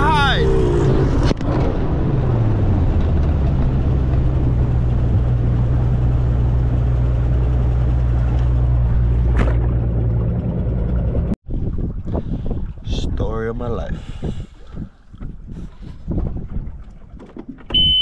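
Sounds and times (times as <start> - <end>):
outboard motor running: 3.6 - 12.6
wind and water rushing: 11.5 - 17.8.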